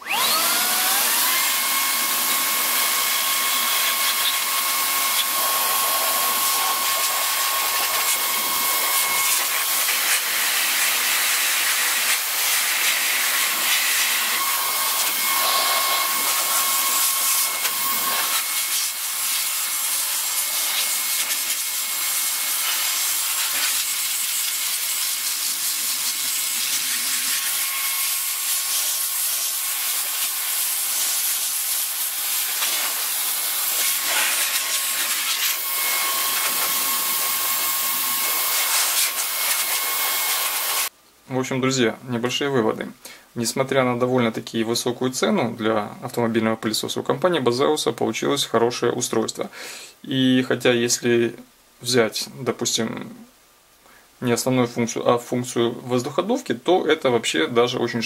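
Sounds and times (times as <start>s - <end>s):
vacuum blower rushing air: 0.0s - 40.9s
high motor whine: 32.1s - 40.9s.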